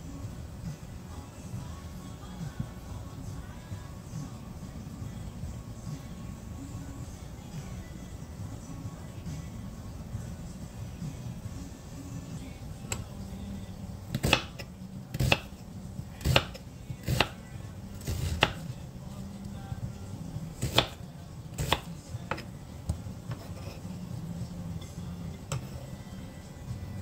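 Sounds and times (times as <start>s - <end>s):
knife hitting cutting board: 14.2s - 14.6s.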